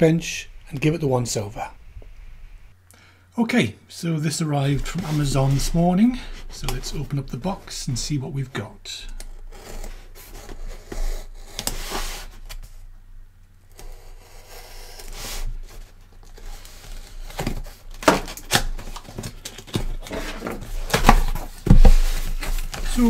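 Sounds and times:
cardboard scraping: 0:04.6 - 0:07.6, 0:09.3 - 0:12.8, 0:13.7 - 0:23.0
cardboard box knocks: 0:21.0 - 0:22.3.

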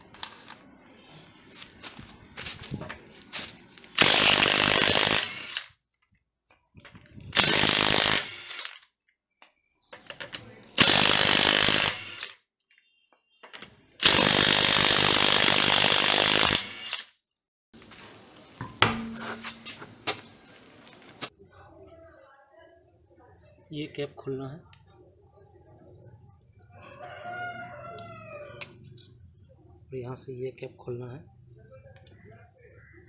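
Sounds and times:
impact wrench hammering: 0:18.6 - 0:19.7.

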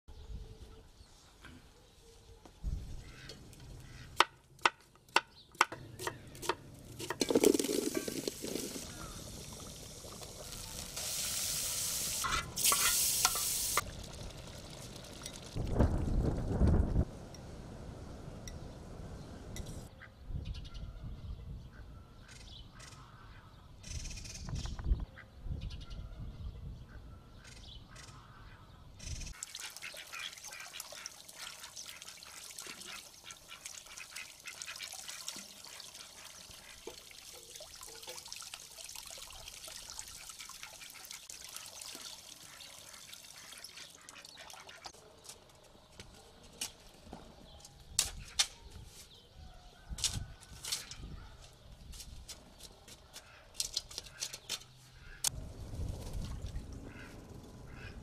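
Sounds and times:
water splashing into stone basin: 0:06.8 - 0:16.0, 0:29.3 - 0:45.0.

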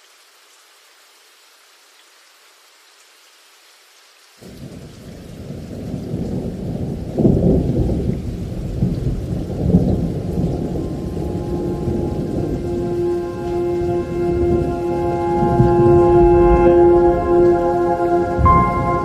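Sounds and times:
rain: 0:00.0 - 0:19.0
thunder rumbling: 0:04.4 - 0:19.0
held musical chord: 0:10.4 - 0:19.0.

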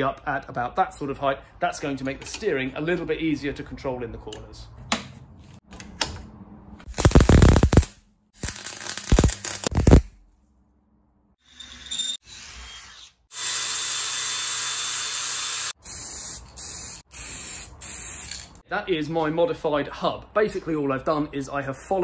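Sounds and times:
electric welding crackle: 0:06.9 - 0:10.1
cordless drill boring through steel: 0:11.4 - 0:15.8.

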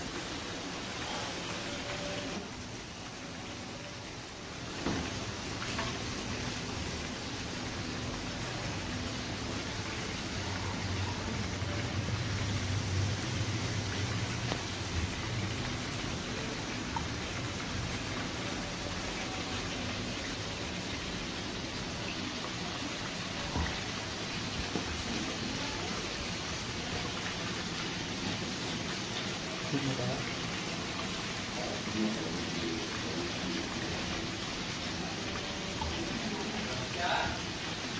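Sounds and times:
oil sizzling: 0:00.0 - 0:37.9.

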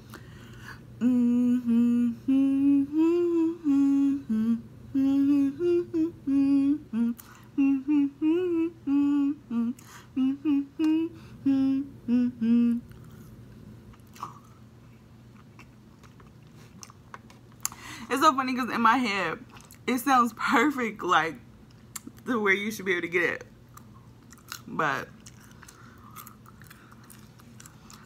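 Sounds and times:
woman humming a melody: 0:01.0 - 0:12.9.

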